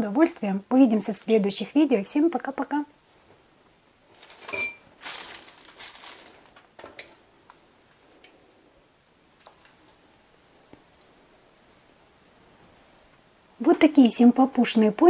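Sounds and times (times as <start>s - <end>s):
plastic piping bag crinkling: 4.1s - 8.3s
kitchenware clink: 4.3s - 4.9s.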